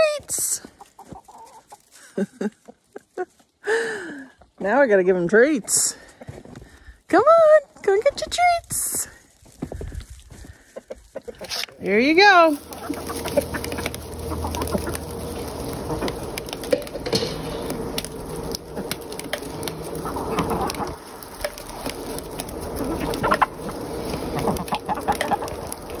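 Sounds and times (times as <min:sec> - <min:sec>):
chickens clucking: 0:00.0 - 0:03.5, 0:10.1 - 0:26.0.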